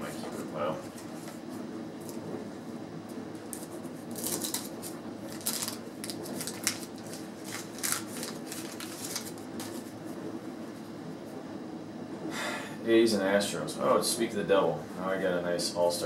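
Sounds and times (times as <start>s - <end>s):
wax-paper wrapper crinkling and tearing: 3.4s - 9.9s.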